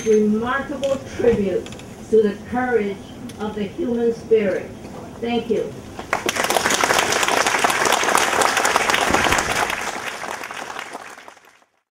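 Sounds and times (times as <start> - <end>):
audience applauding: 6.0 - 11.8.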